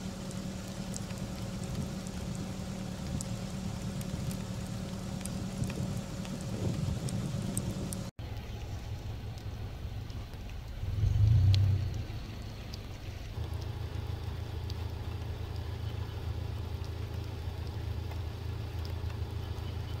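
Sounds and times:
low rumble of thunder: 0.0 - 8.1, 9.1 - 19.6
rain falling: 0.0 - 20.0
scattered drop ticks: 7.5 - 20.0.

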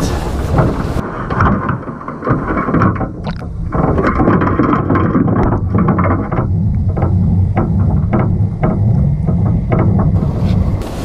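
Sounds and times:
clicks and knocks: 0.0 - 10.9
muffled underwater rumble: 0.0 - 11.0
wind hiss: 10.2 - 11.0.

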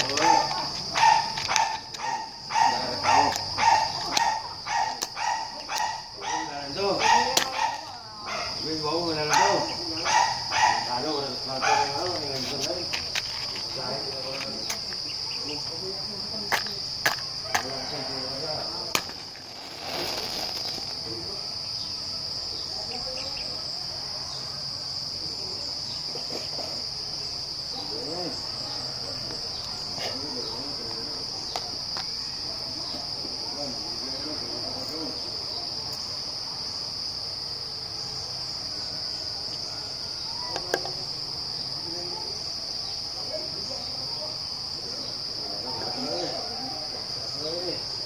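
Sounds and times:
insects chirping: 0.0 - 48.0
match being struck: 18.9 - 21.1.

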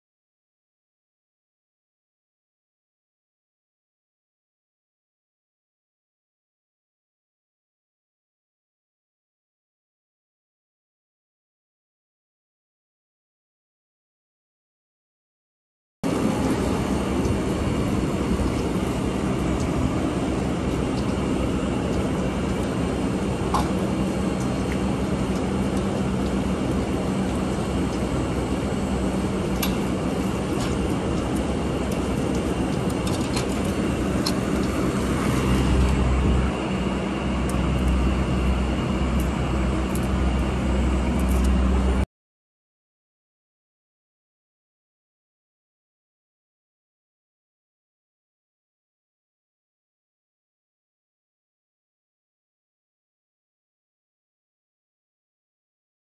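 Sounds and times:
air conditioning units humming: 16.0 - 42.0
deep low rumble: 16.1 - 42.0.

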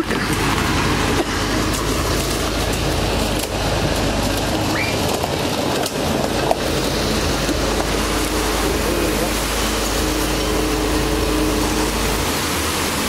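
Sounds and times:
constant rushing noise: 0.0 - 13.0
diesel engine running: 0.0 - 13.0.

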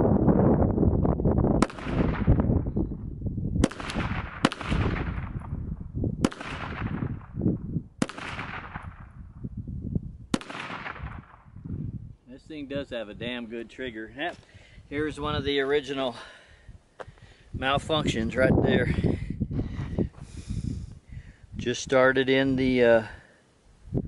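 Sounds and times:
low rumbling noise: 0.0 - 12.2
pistol shots echoing: 3.6 - 5.4, 6.2 - 7.1, 8.0 - 9.0, 10.3 - 11.5.

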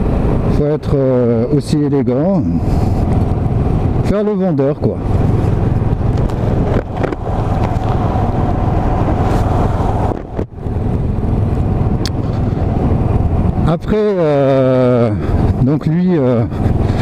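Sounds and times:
wind noise on microphone: 0.0 - 0.8, 2.0 - 17.0
motorcycle engine running: 5.0 - 13.7.

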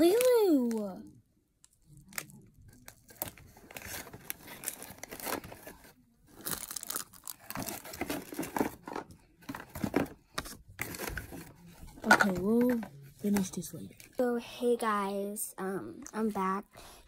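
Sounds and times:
rustling and crinkling: 1.7 - 14.2.

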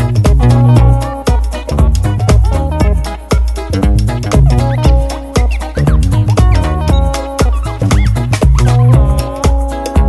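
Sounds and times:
upbeat dance music: 0.0 - 10.0.

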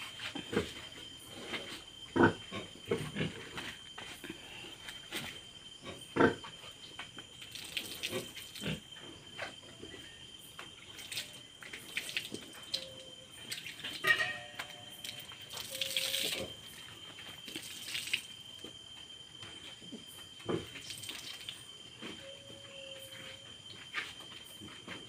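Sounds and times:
pigs grunting: 2.1 - 3.6, 5.8 - 6.5
water sloshing in a basin: 7.3 - 8.8, 10.9 - 18.6, 20.6 - 21.7.

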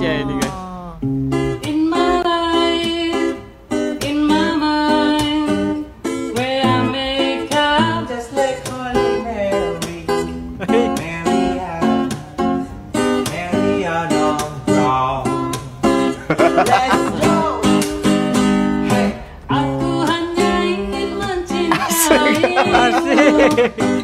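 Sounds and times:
person singing: 0.0 - 1.0, 16.4 - 17.8, 18.9 - 24.0
guitar melody: 0.0 - 24.0.

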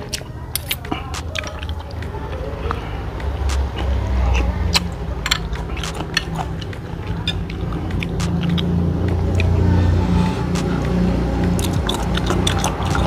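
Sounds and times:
chewing: 0.0 - 13.0
mouth and utensil clicks: 3.2 - 4.0, 4.6 - 9.5.

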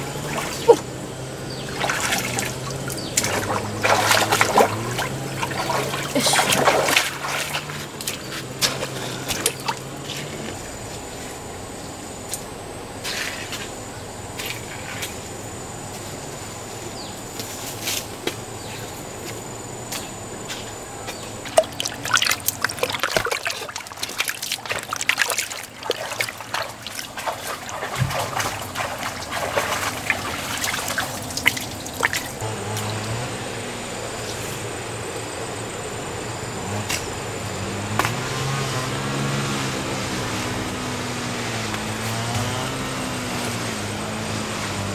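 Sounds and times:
water splashing: 0.0 - 0.9, 1.5 - 10.5, 21.4 - 33.2
low wavering hum: 0.0 - 44.9.

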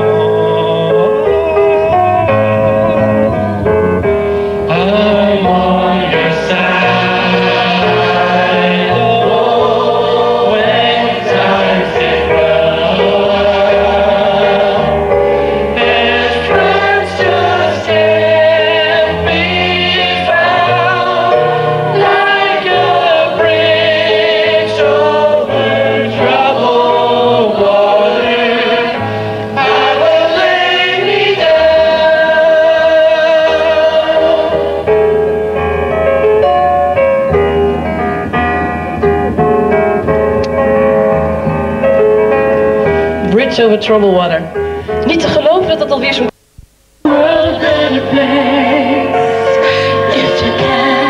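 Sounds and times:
choir singing: 4.7 - 35.1, 47.0 - 51.0.

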